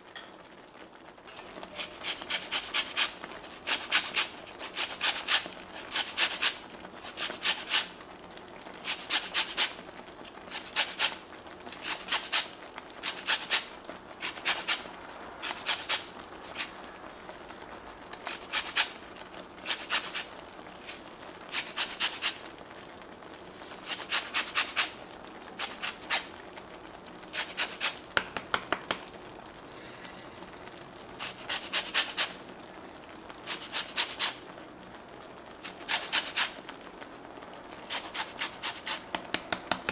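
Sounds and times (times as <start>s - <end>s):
lemon rind rasping on grater: 1.7s - 7.8s, 10.5s - 11.1s, 11.8s - 14.8s, 15.4s - 16.7s, 18.3s - 18.9s, 19.6s - 20.2s, 23.8s - 24.9s, 25.6s - 26.2s, 35.6s - 36.5s, 37.9s - 39.0s.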